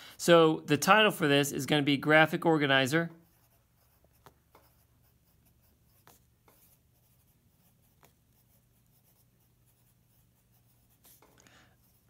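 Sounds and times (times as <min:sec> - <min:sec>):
pencil writing on paper: 0:03.2 - 0:12.0.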